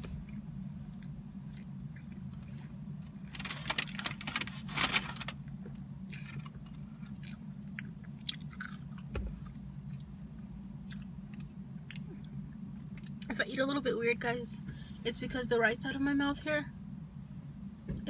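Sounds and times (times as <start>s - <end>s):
steady low hum: 0.0s - 18.0s
person chewing food: 0.1s - 3.3s, 6.0s - 13.2s
crackly rustle: 2.0s - 5.6s.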